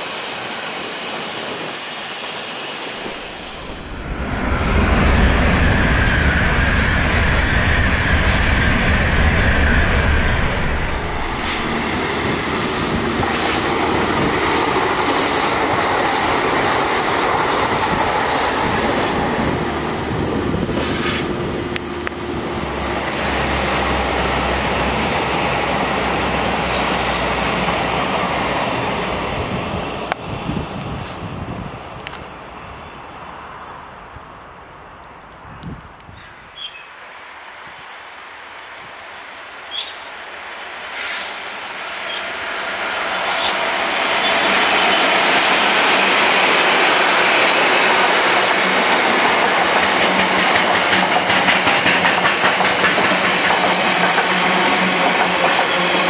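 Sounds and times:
trains passing at speed: 0.0s - 56.0s
sharp clicks of train wheels: 40.8s - 56.0s.

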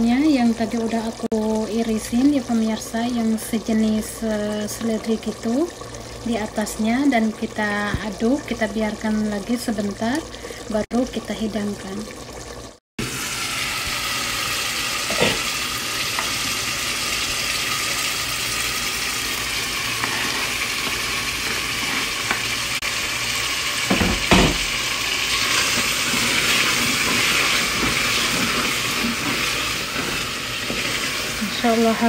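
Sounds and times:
curry sizzling in a pot: 0.0s - 32.0s
wooden spoon stirring: 19.9s - 22.6s, 25.4s - 32.0s.

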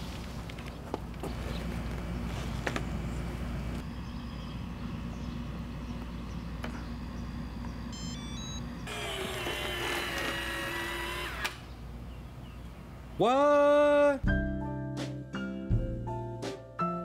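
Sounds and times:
electric fold motor whining: 8.0s - 11.7s
man exclaiming: 13.2s - 14.2s.

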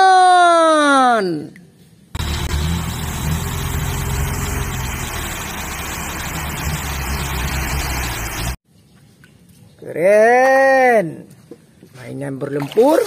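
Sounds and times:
truck engine running: 2.2s - 8.6s.

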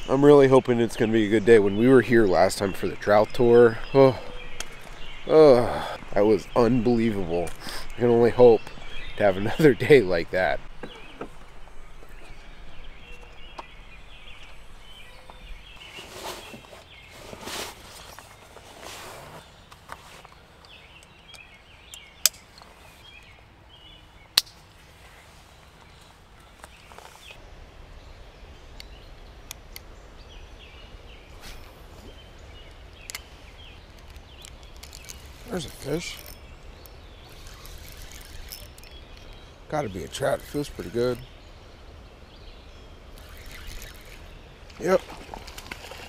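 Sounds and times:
faint bird chirps: 0.0s - 17.2s, 24.9s - 46.0s
brief rustle: 14.4s - 20.8s, 33.9s - 36.4s, 37.3s - 39.3s
small clicks: 33.9s - 39.4s.

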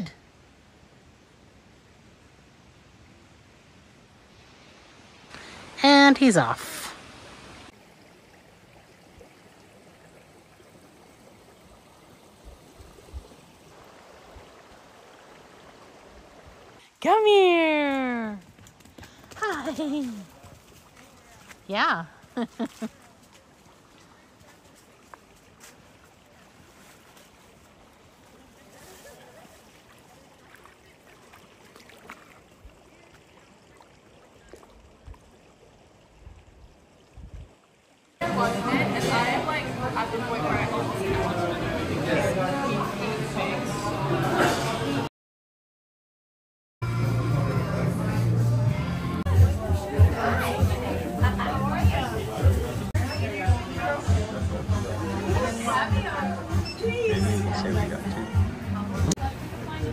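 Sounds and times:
river water rushing: 0.4s - 17.8s, 20.2s - 45.0s
dog splashing in water: 28.6s - 34.7s.

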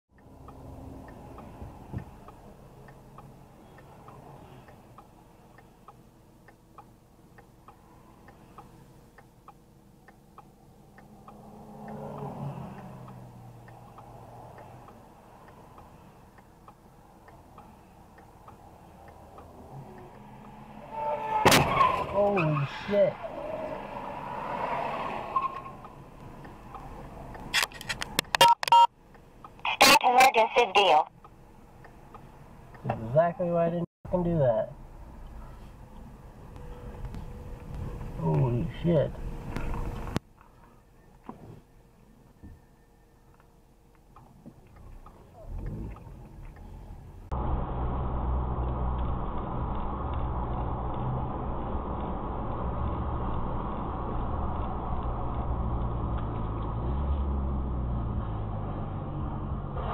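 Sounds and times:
turn signal clicking: 0.1s - 21.4s, 25.4s - 29.7s, 31.1s - 33.1s, 39.1s - 47.4s, 48.2s - 58.2s
low engine hum: 0.1s - 22.4s, 23.1s - 28.4s, 31.1s - 59.9s
road noise: 0.1s - 59.9s
traffic noise: 0.1s - 59.9s
short electronic beeps: 28.3s - 28.9s.

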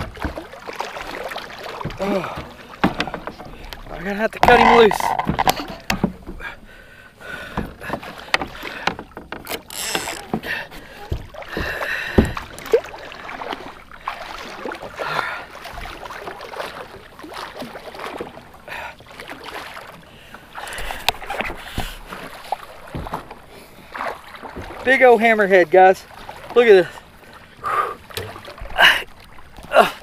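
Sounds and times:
knocks and clicks from line and hull: 0.0s - 6.5s, 7.4s - 13.7s, 20.6s - 23.5s, 24.1s - 25.0s, 28.1s - 29.7s
water splashing: 0.0s - 30.0s.

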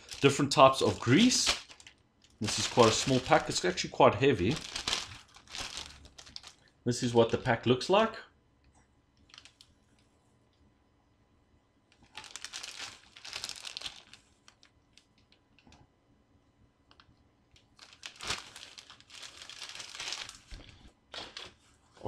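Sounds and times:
plastic bag crinkling: 0.0s - 6.7s, 9.3s - 9.7s, 12.0s - 15.1s, 17.6s - 21.6s.

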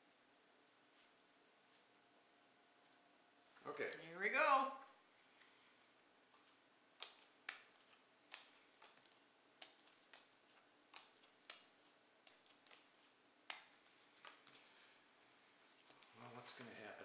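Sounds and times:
playing cards snapping on stone: 7.0s - 14.6s.

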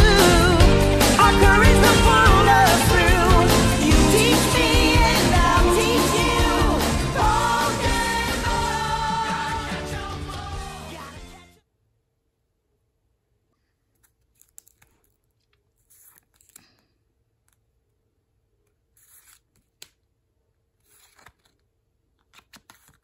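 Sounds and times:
cards sliding swishes: 18.9s - 20.0s, 20.8s - 21.6s, 22.3s - 23.0s.

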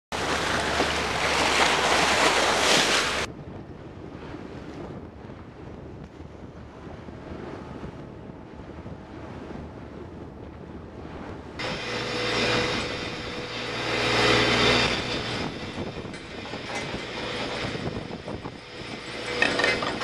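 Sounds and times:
water rushing and splashing: 0.1s - 3.3s, 11.0s - 20.0s
waves: 0.1s - 20.0s
wind: 0.1s - 20.0s.

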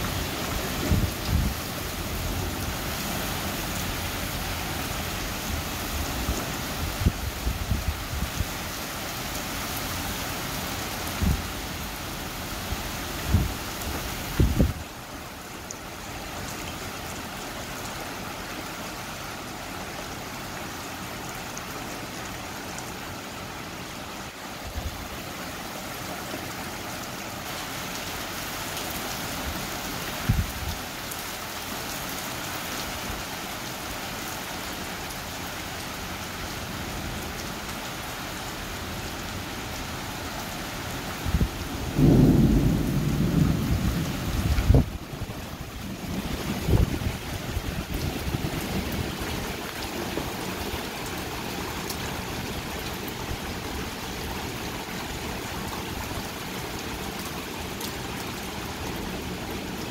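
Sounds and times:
heavy rain: 0.0s - 59.9s
low thunder rumble: 41.3s - 49.2s.

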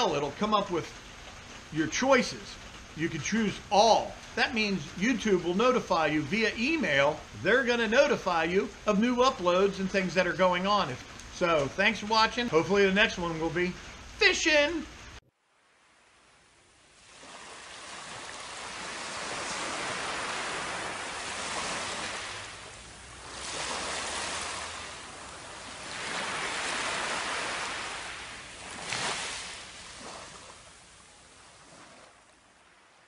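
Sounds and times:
surf washing up a beach: 15.6s - 33.0s.

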